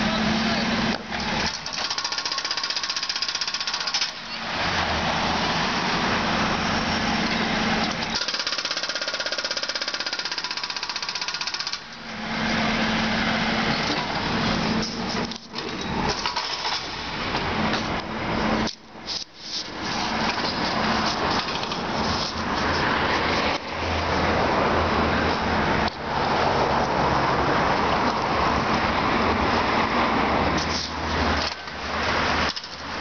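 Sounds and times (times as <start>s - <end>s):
engine running steadily: 0.0s - 33.0s
jackhammer breaking asphalt: 1.2s - 4.2s, 8.0s - 11.9s, 16.1s - 17.0s.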